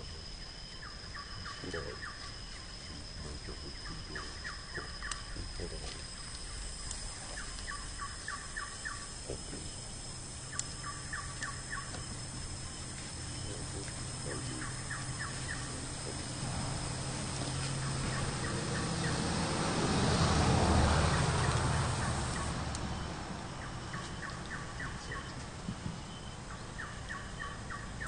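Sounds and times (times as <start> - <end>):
steady high tone: 0.0 - 24.1
low rumble: 2.8 - 23.8.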